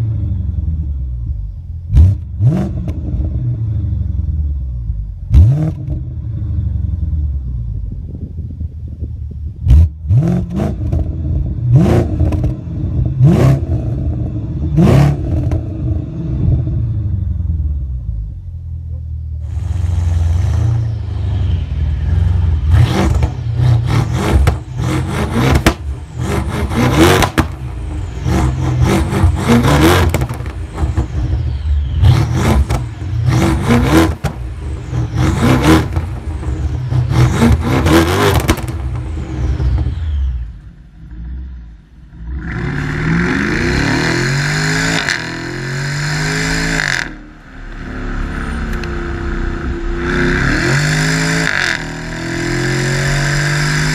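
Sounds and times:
car engine revving: 0.0s - 7.9s, 9.5s - 53.9s
exhaust cracks and pops: 38.3s - 39.0s.

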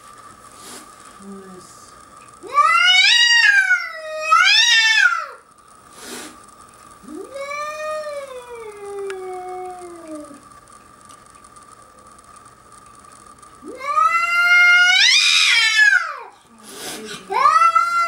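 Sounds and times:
cat yowling: 2.5s - 5.4s, 13.7s - 16.2s, 17.3s - 18.0s.

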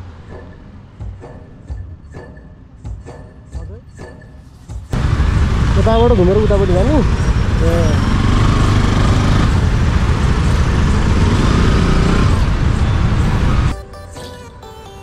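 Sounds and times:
motorcycle engine: 5.0s - 13.7s.

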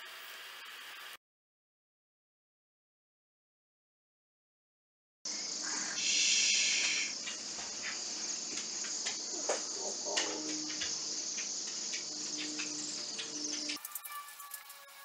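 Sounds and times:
flock of birds trilling: 5.3s - 14.0s.

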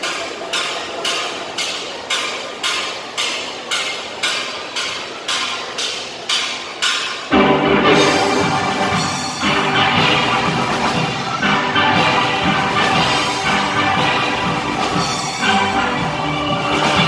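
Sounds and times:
steel band playing: 7.3s - 17.0s.

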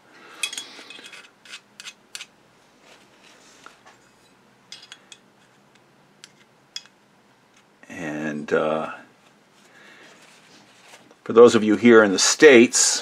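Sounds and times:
screwdriver scraping grease: 0.8s - 2.3s.

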